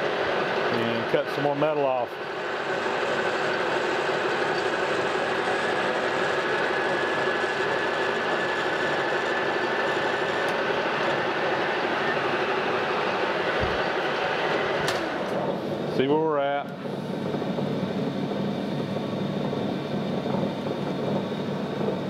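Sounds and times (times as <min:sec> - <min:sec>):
metal lathe cutting brass: 0:00.0 - 0:14.8.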